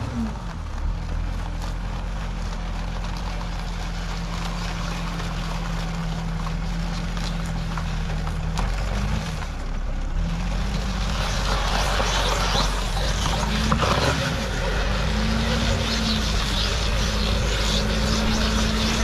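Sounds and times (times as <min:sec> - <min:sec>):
tracked vehicle engine under load: 0:00.0 - 0:19.0.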